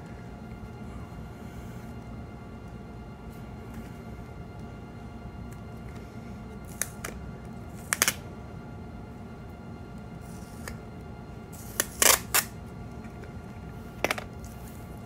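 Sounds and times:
steady background hum: 0.0s - 15.0s
packing tape crackling: 6.6s - 8.2s, 11.6s - 12.6s.

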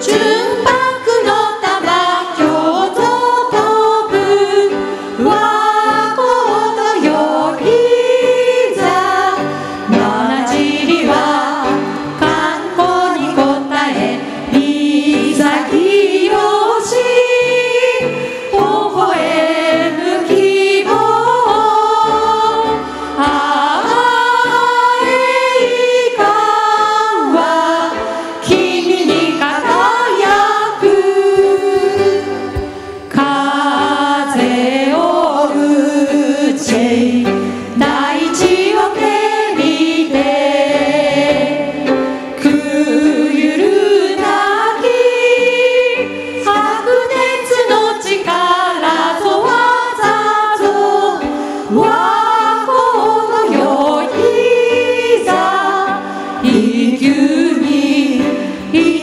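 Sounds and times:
small band playing: 0.0s - 59.0s
women singing together: 0.0s - 59.0s.

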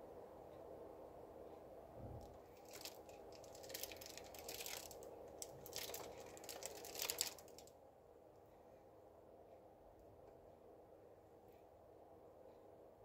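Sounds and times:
plastic piping bag crinkling: 2.4s - 7.7s.

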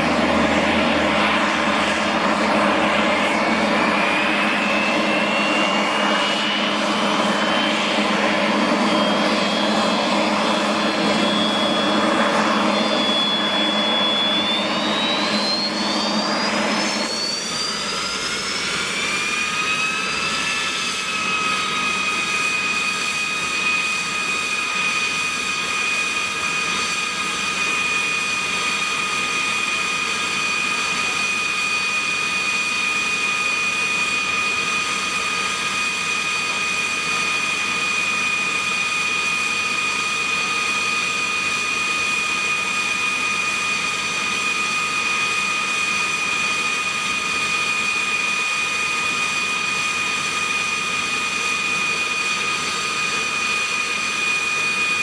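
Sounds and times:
jet engine idling with whine: 0.0s - 55.0s.

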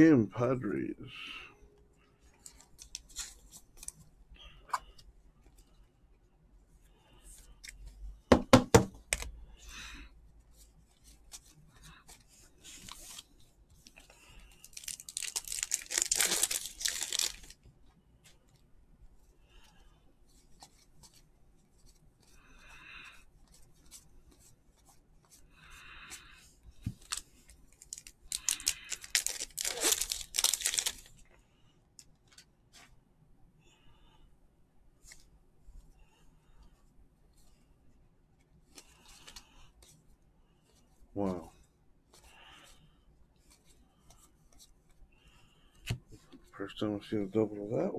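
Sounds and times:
foil packs tearing and crinkling: 14.6s - 17.6s, 27.8s - 31.1s.

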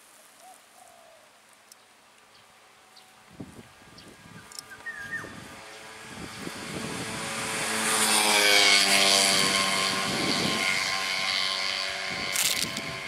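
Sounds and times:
engine droning past: 3.7s - 13.0s.

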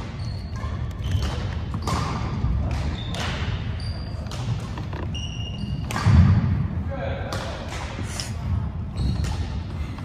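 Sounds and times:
sneaker squeaks on wooden court: 0.0s - 6.4s, 8.9s - 9.6s
ball impacts echoing in gym: 0.0s - 10.0s.

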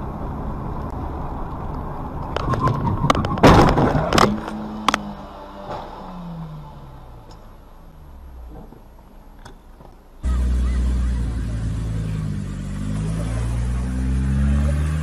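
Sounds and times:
faint road noise: 0.0s - 15.0s
car engine revving: 3.2s - 8.8s, 10.2s - 15.0s
car driving through floodwater: 10.3s - 15.0s.

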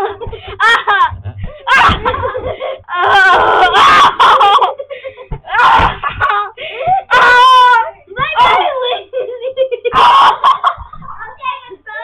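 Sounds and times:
children shouting and laughing: 0.0s - 12.0s.

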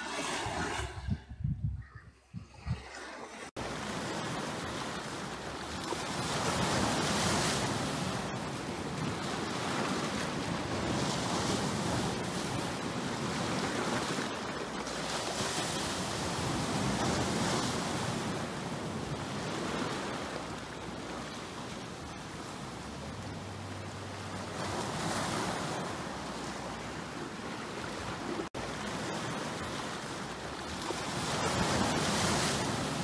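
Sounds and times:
waves breaking on boulders: 2.9s - 20.4s, 28.0s - 33.0s.

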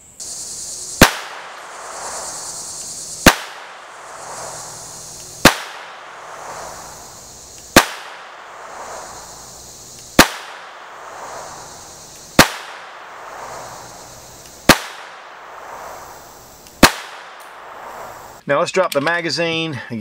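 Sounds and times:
pistol shots with echo: 1.0s - 2.1s, 3.2s - 4.2s, 5.4s - 6.4s, 7.7s - 8.9s, 10.2s - 11.2s, 12.4s - 13.3s, 14.7s - 15.7s, 16.8s - 17.9s.

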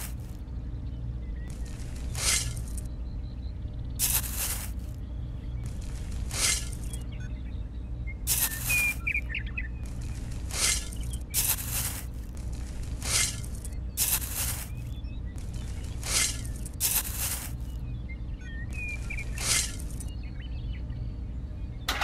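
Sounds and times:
birds chirping faintly: 0.0s - 22.0s
steady low hum: 0.0s - 22.0s
toy shovel scraping sand: 2.0s - 2.8s, 4.0s - 5.0s, 6.2s - 7.0s, 8.3s - 9.1s, 10.3s - 14.9s, 15.8s - 17.8s, 19.0s - 20.1s.

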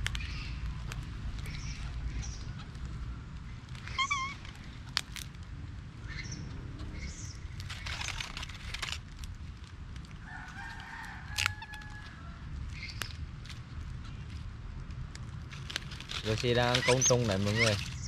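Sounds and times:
dry leaves crackling: 0.0s - 18.0s
distant rooster crowing: 10.2s - 12.6s.

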